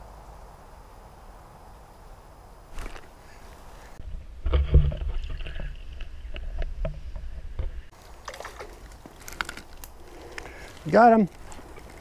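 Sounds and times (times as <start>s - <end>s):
brook flowing: 7.9s - 12.0s.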